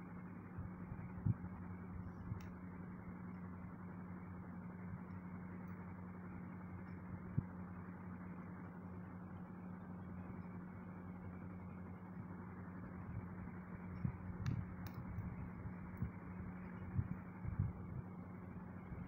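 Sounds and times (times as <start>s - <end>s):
constant low hum: 0.0s - 19.0s
small clicks: 13.9s - 15.3s.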